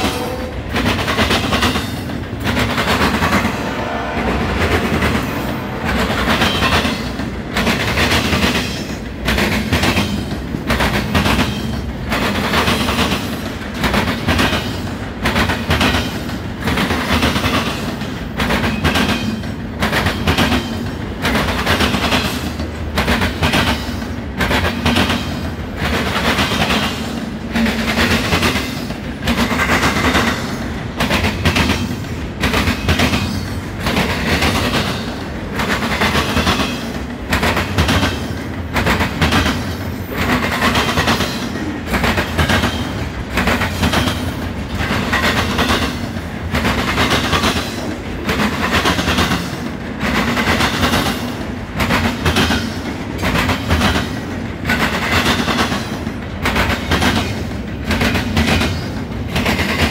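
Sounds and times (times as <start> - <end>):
train low rumble: 0.0 - 59.9
train wheels clacking over rails: 0.0 - 59.9.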